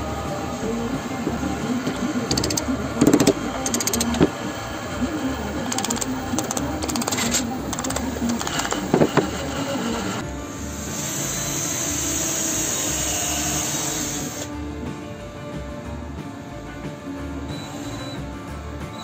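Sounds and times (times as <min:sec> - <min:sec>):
metal fittings clicking: 0:01.8 - 0:04.4, 0:05.7 - 0:09.5
wooden block knocking: 0:05.7 - 0:09.6.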